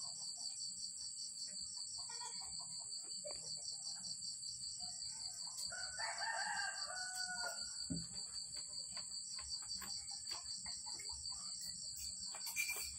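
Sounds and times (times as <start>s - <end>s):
rooster crowing: 5.6s - 8.0s.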